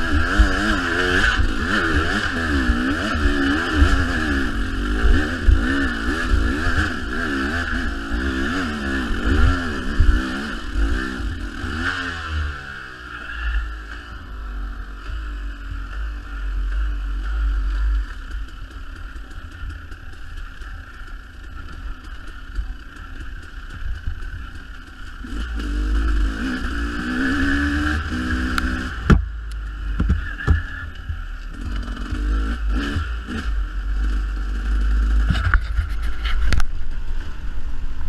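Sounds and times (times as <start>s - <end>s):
dirt bike engine revving: 0.0s - 37.4s
bike knocks and rattles: 29.0s - 31.3s, 35.2s - 36.8s.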